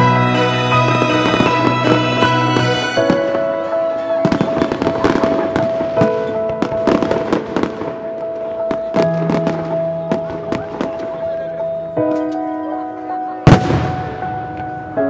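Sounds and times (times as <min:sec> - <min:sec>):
fireworks bangs and crackles: 0:00.0 - 0:12.4, 0:13.4 - 0:15.0
music with long held notes: 0:00.0 - 0:15.0.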